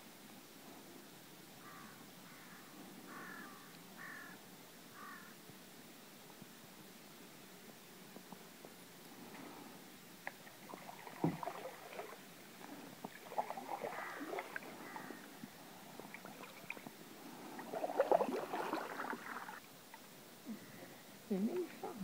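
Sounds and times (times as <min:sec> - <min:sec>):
canoe paddle splashing in water: 0:10.2 - 0:19.6.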